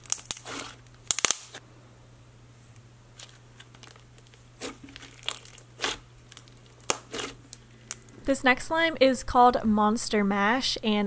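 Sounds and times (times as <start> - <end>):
slime squeezed with sticky pops: 4.6 - 7.4.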